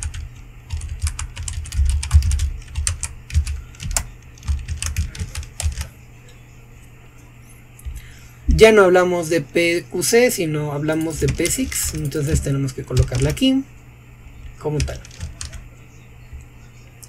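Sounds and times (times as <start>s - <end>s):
keyboard typing: 0.0s - 5.9s, 10.9s - 13.4s, 14.7s - 15.6s.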